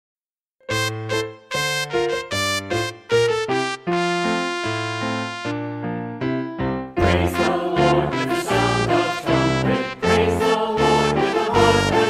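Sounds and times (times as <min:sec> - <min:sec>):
hymn music on keyboard: 0:07.0 - 0:12.0.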